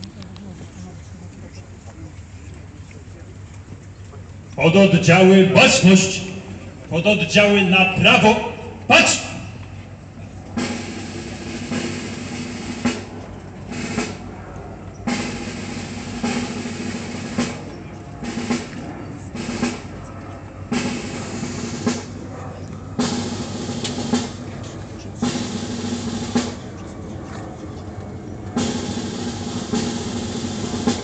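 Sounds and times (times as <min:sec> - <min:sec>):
snare drum rolls: 0:04.6 - 0:09.8, 0:10.6 - 0:14.3, 0:15.1 - 0:20.0, 0:20.7 - 0:22.2, 0:23.0 - 0:26.7, 0:28.6 - 0:31.0.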